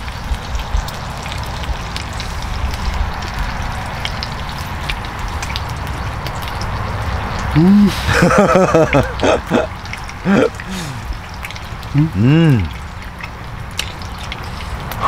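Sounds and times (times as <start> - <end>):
small crackles and pops: 0.0 - 7.5, 11.2 - 11.9, 12.7 - 15.0
pork sizzling on a griddle: 0.0 - 8.9, 12.8 - 15.0.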